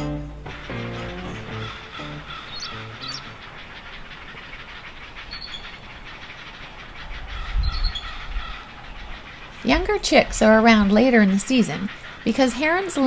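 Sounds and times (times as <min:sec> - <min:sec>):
guitar music: 0:00.0 - 0:03.6
low rumble: 0:00.0 - 0:03.8
faint high chirps: 0:00.0 - 0:05.8
outdoor background hiss: 0:00.0 - 0:13.0.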